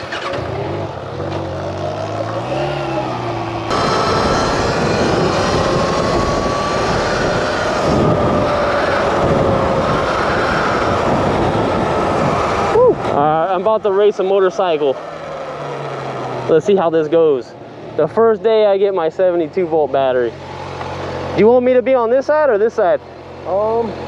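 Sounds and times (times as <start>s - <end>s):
motorcycle engine running: 0.0s - 17.0s, 20.4s - 24.0s
whine rising and falling in pitch: 2.3s - 14.7s
rush of wind noise: 3.3s - 13.9s.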